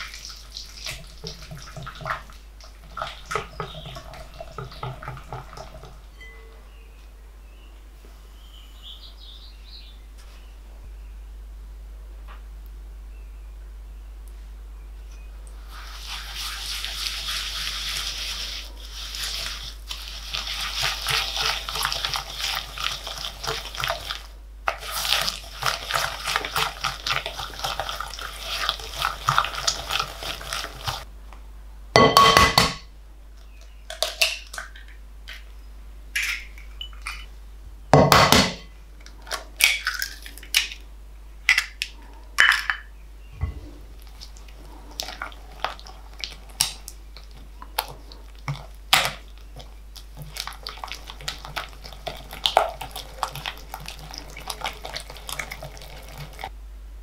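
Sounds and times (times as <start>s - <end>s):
whisk scraping glass bowl: 0.0s - 6.0s, 15.8s - 31.1s, 47.2s - 56.5s.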